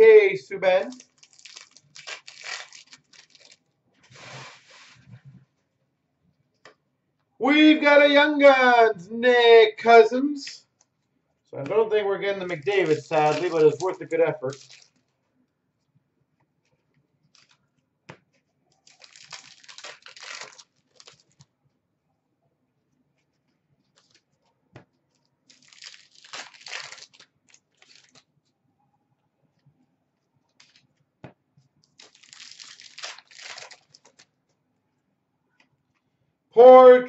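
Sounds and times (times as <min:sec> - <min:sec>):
card wrappers crinkling: 0:00.6 - 0:04.9, 0:11.7 - 0:15.1, 0:17.3 - 0:17.6, 0:18.8 - 0:21.5, 0:23.9 - 0:24.3, 0:25.2 - 0:28.3, 0:30.5 - 0:31.0, 0:31.8 - 0:34.3.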